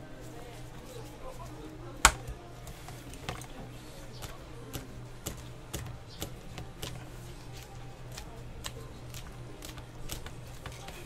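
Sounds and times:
hands patting dough: 0:00.5 - 0:11.0.

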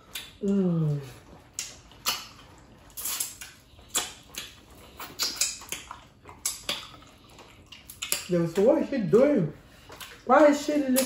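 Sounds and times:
wet mouth smacks licking fingers: 0:00.1 - 0:00.5, 0:01.5 - 0:08.3.

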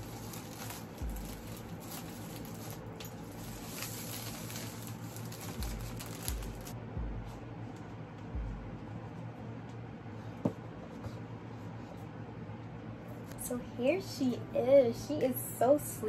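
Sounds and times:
plastic shrink wrap tearing: 0:00.0 - 0:06.8.

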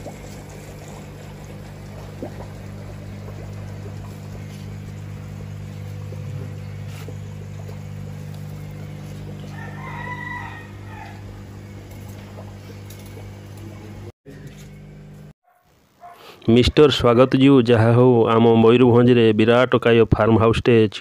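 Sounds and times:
low electrical hum: 0:00.0 - 0:20.9
rooster crowing: 0:09.4 - 0:11.5.

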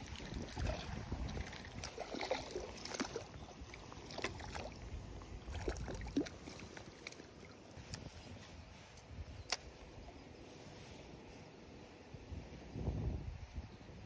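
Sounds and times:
water splashing: 0:00.0 - 0:08.0.

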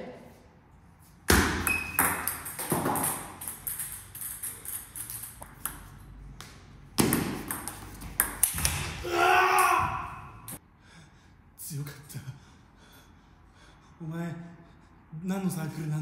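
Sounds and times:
ping pong ball clicking: 0:01.6 - 0:05.8, 0:07.0 - 0:08.8.

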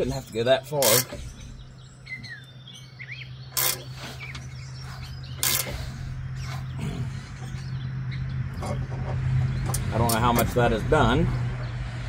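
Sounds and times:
birds chirping faintly: 0:00.0 - 0:12.0
steady low hum: 0:00.0 - 0:12.0
wrench metal clacks: 0:03.6 - 0:03.9, 0:05.4 - 0:05.8.

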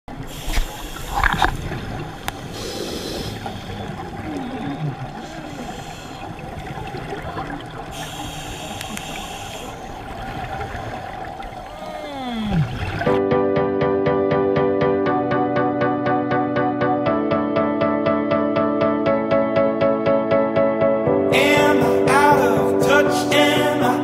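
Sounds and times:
bubbling and low gurgles: 0:00.1 - 0:13.2
muffled underwater hum: 0:00.1 - 0:13.2
diver's regulator hissing: 0:00.2 - 0:06.6, 0:07.9 - 0:10.1.

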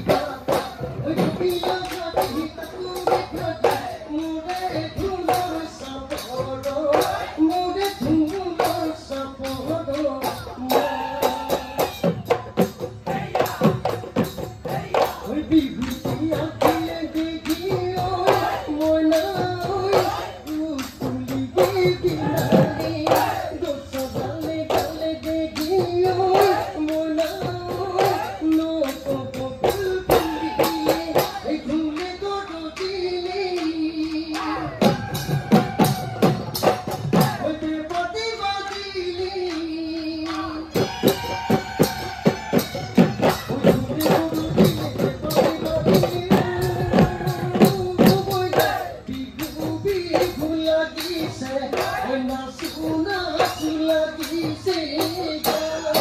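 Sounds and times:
drums beaten fast: 0:00.0 - 0:56.0
person singing: 0:14.6 - 0:56.0.

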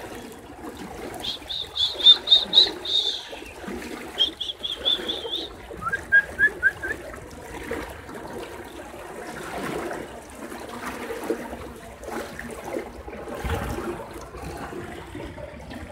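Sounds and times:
floodwater sloshing and splashing: 0:00.0 - 0:15.9.

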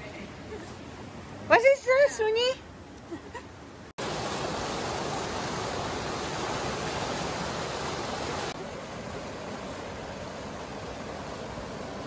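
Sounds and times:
water rushing from pipes: 0:04.0 - 0:12.0.

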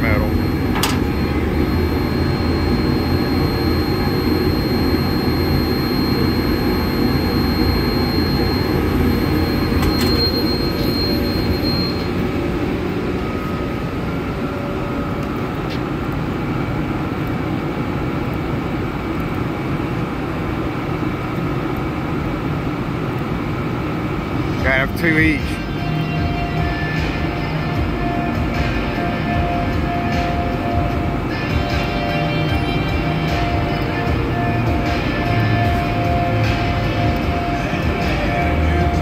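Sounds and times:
thin high whine: 0:00.0 - 0:21.1
laser cutter machine drone: 0:00.0 - 0:39.0.

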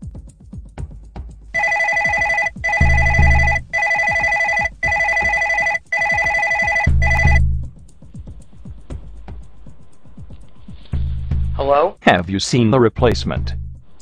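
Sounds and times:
electronic telephone ringing: 0:01.6 - 0:07.4.

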